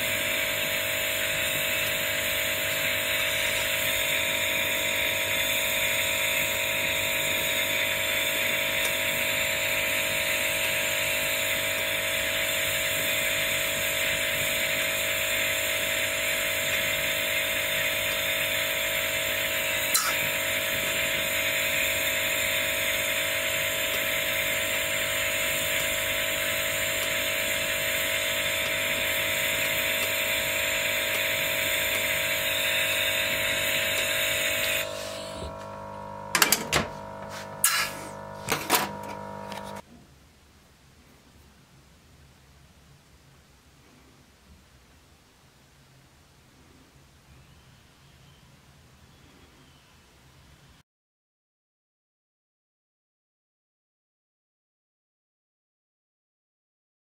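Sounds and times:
gas torch flame hissing: 0.0 - 39.8
sharp click: 19.9 - 20.2.

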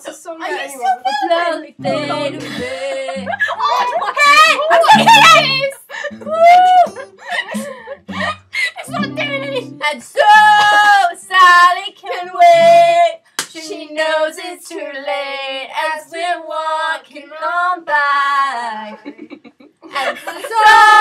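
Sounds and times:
girl singing long notes: 0.6 - 3.6, 4.8 - 11.2, 12.0 - 13.2.

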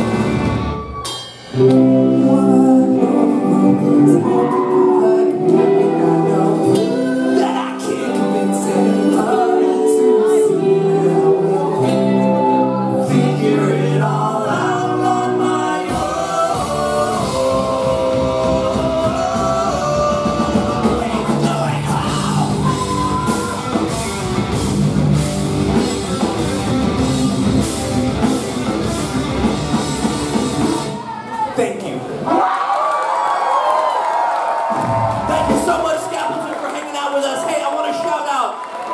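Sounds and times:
ska band playing: 0.0 - 31.3, 34.7 - 36.5
drums: 0.0 - 31.6, 34.5 - 36.5
people shouting: 22.2 - 24.0.

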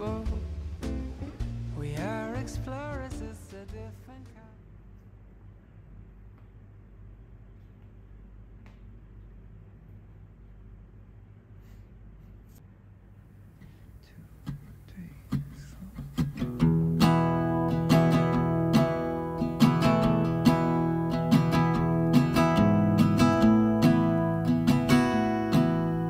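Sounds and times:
acoustic guitar song: 0.0 - 4.4, 14.4 - 26.0.

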